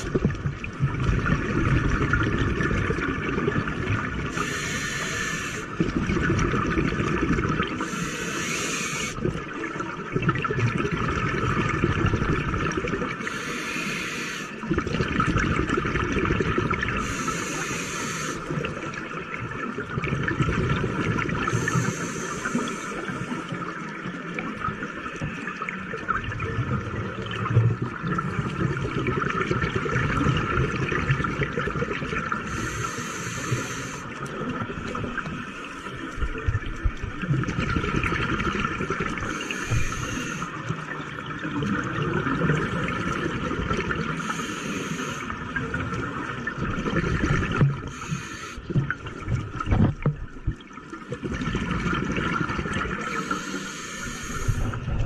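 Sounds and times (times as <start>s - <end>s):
exhaled bubbles rushing: 0.0s - 4.4s, 5.7s - 7.9s, 9.1s - 13.2s, 14.6s - 17.2s, 18.4s - 32.6s, 34.0s - 44.3s, 45.2s - 48.0s, 48.6s - 53.4s, 54.0s - 55.0s
regulator inhalation hiss: 4.3s - 5.7s, 7.8s - 9.2s, 13.2s - 14.6s, 17.0s - 18.5s, 21.5s - 23.4s, 32.5s - 34.1s, 39.3s - 40.6s, 44.2s - 45.3s, 47.9s - 48.6s, 53.1s - 54.8s.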